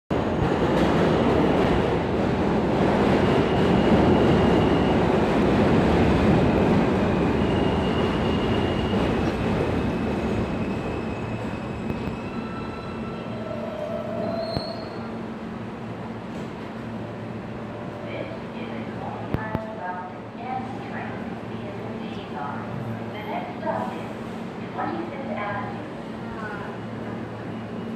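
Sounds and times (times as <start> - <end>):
train wheels rumbling on rail: 0.1 - 19.8.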